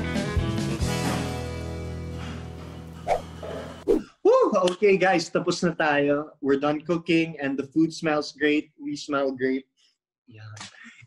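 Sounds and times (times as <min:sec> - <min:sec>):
background music: 0:00.0 - 0:04.1.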